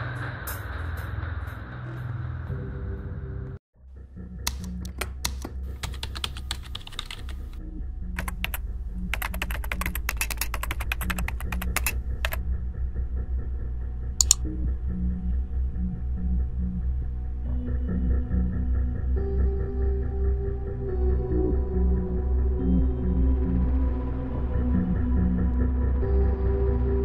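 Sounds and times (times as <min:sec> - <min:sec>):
soft background music: 0:00.0 - 0:27.0
laptop keyboard typing: 0:04.5 - 0:07.6, 0:08.2 - 0:12.4.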